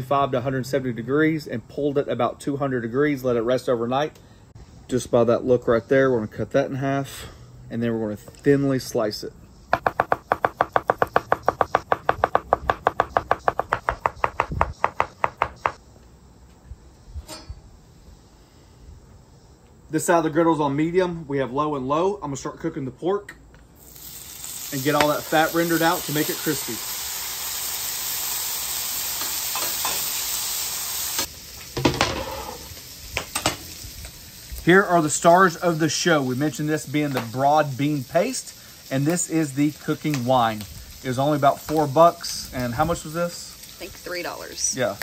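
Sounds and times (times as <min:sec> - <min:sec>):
metal spatula scraping: 0:17.2 - 0:17.6
meat sizzling on a griddle: 0:23.8 - 0:45.0.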